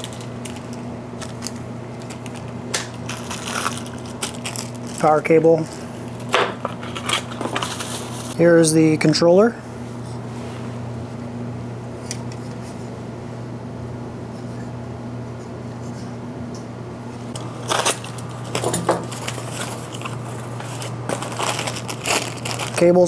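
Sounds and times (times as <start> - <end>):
clatter and rustle of packaging: 0.0 - 2.5, 3.1 - 5.8, 6.6 - 8.4, 17.6 - 23.0
steady low hum: 0.0 - 23.0.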